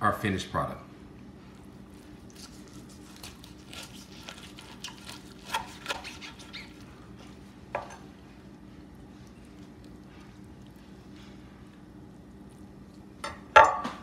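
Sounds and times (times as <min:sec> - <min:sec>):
knife crunching and scraping: 0:01.9 - 0:08.1.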